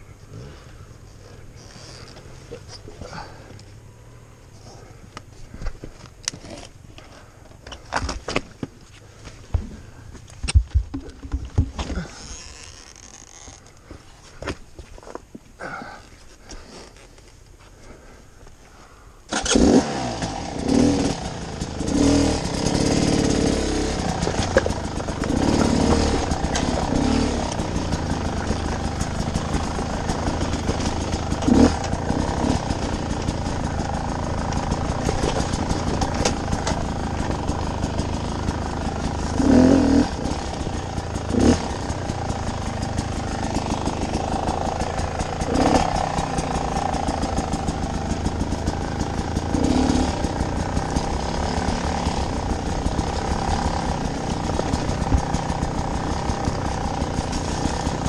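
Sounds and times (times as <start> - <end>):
dirt bike engine revving: 19.3 - 58.0.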